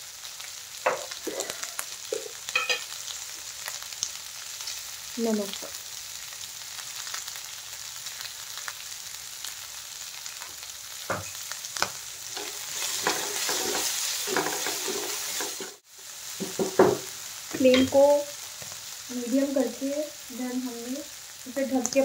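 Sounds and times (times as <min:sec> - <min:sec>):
vegetables sizzling in a frying pan: 0:00.0 - 0:22.0
spatula scraping a pan: 0:12.3 - 0:15.8.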